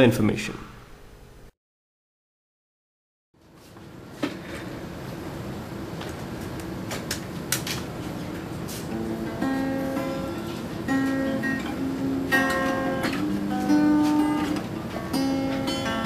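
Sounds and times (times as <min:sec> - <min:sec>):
plucked guitar notes and chords: 0:08.9 - 0:16.0.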